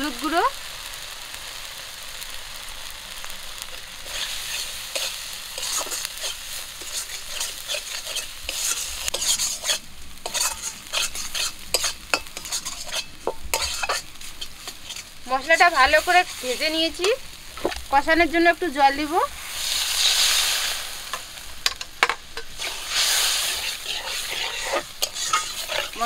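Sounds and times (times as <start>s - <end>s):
spice paste sizzling in oil: 0.0s - 26.0s
metal spatula scraping pan: 3.7s - 17.8s, 21.7s - 26.0s.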